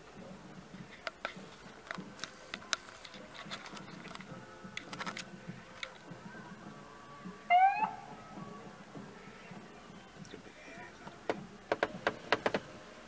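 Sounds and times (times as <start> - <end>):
raindrops tapping on car: 9.0 - 12.8.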